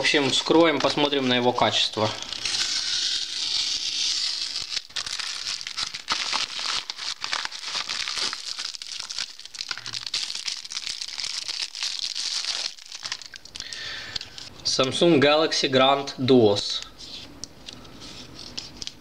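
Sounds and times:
plastic bag crinkling: 0.0s - 14.5s.

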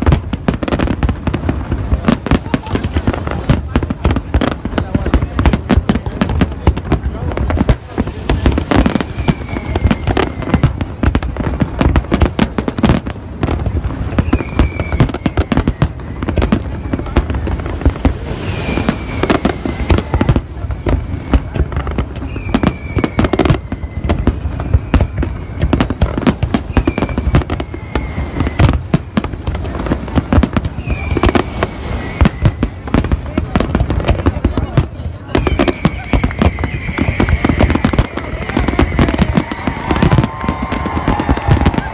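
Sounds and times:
fireworks bursting and crackling: 0.0s - 41.9s
falling whistle: 9.0s - 10.6s, 14.2s - 16.4s, 18.3s - 21.5s, 22.2s - 25.7s, 26.7s - 28.8s, 30.8s - 32.7s, 35.4s - 41.9s.

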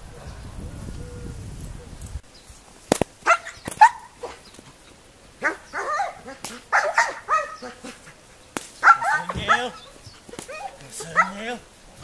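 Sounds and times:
sharp crack: 2.8s - 4.7s, 6.3s - 7.2s, 7.8s - 9.7s
dog barking: 3.2s - 4.4s, 5.4s - 8.1s, 8.8s - 11.5s.

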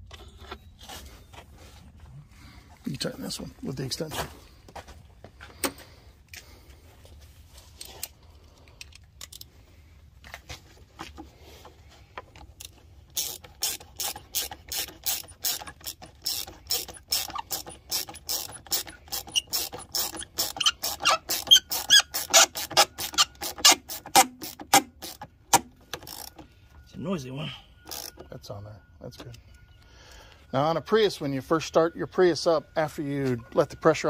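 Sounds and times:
socket ratchet clicking: 13.1s - 26.4s.

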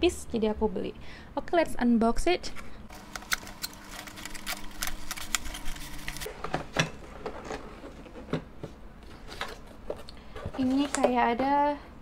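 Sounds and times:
cardboard packaging rustling: 2.9s - 8.3s.

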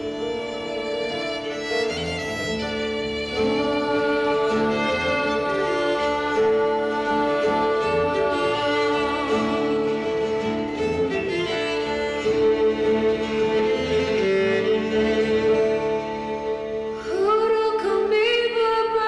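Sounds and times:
lower sustained notes: 0.0s - 17.0s
violin playing slow notes: 0.0s - 18.2s.

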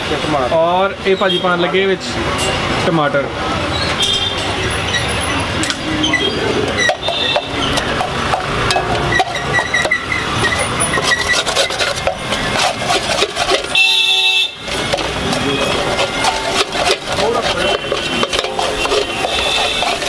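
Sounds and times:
vehicle horn honking: 4.0s - 4.4s, 6.9s - 7.6s, 13.6s - 16.4s, 17.5s - 20.0s
metal ladle scraping a pan: 4.6s - 20.0s.

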